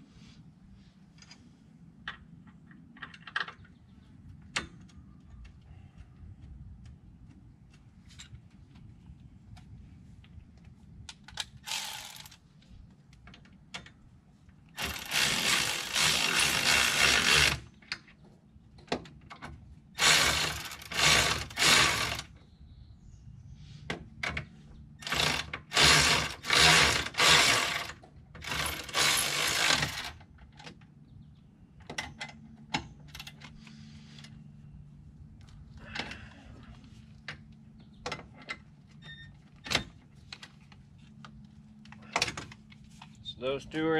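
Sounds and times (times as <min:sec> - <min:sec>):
ratchet wrench clicking: 0:11.6 - 0:12.4.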